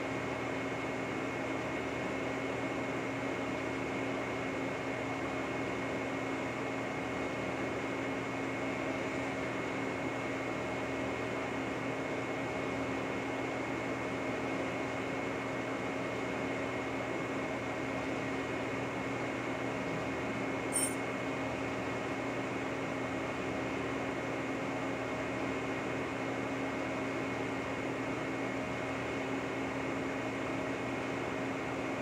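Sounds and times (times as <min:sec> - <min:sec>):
high-pitched machine whine: 0:20.7 - 0:21.0.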